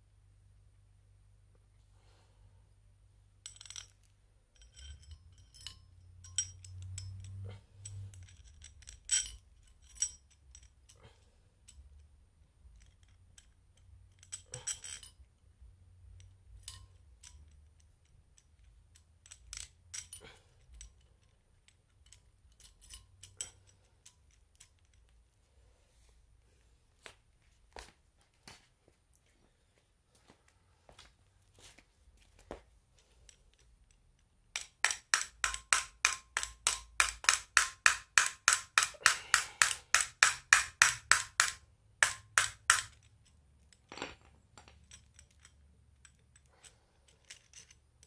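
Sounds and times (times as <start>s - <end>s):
small metal parts clinking: 3.4s - 25.3s, 33.0s - 48.0s.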